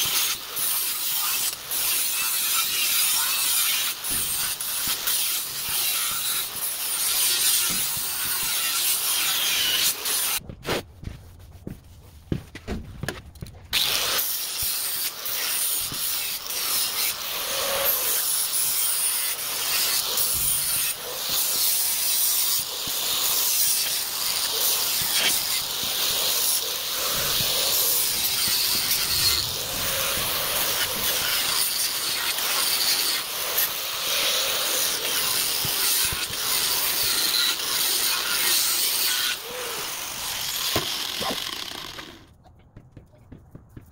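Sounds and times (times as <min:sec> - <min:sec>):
angle grinder grinding steel: 0:00.0 - 0:10.4, 0:13.7 - 0:42.4.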